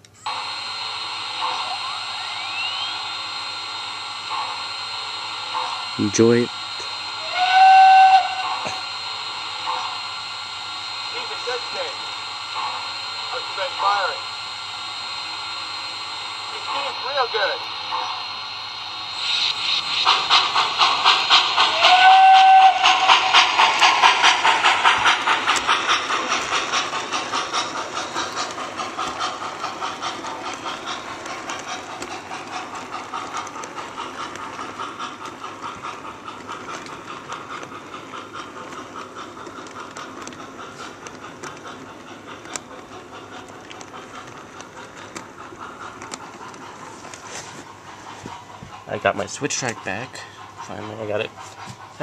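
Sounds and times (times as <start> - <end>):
model steam locomotive chuffing: 0.0 - 52.0
wheels clicking over track: 20.0 - 52.0.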